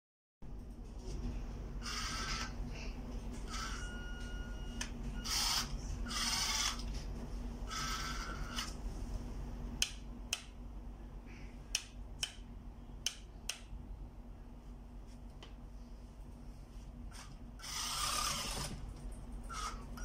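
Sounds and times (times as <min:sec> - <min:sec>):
model motors whirring: 0:01.8 - 0:02.5, 0:05.2 - 0:06.8, 0:07.7 - 0:08.8, 0:17.2 - 0:18.8.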